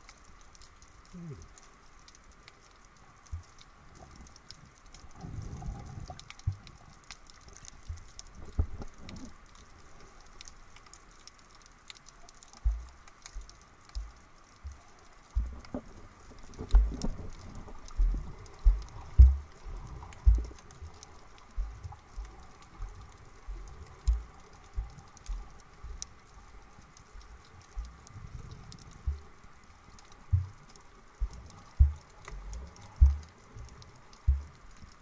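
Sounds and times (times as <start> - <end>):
faint clicks and crackles: 0.0 - 35.0
muffled underwater noise: 1.0 - 1.9
low thumps: 12.6 - 15.9, 16.6 - 17.3, 17.9 - 21.0, 21.6 - 22.4, 31.2 - 34.6.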